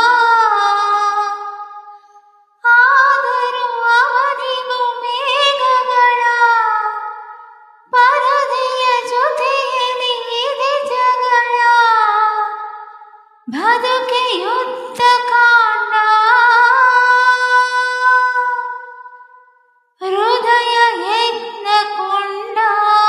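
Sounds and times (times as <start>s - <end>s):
woman singing high phrases: 7.9s - 12.5s, 13.5s - 18.7s, 20.0s - 23.0s.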